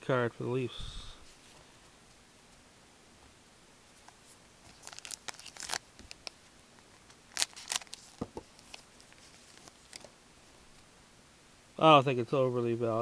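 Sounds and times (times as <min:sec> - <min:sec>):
trading cards scraping and rustling: 0:04.0 - 0:06.3, 0:07.1 - 0:10.1.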